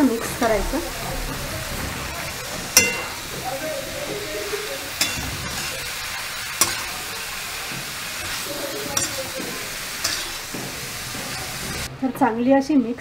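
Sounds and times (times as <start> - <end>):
food sizzling in frying pan: 0.0 - 11.9
spatula knocking against pan: 2.8 - 3.2, 6.6 - 7.1.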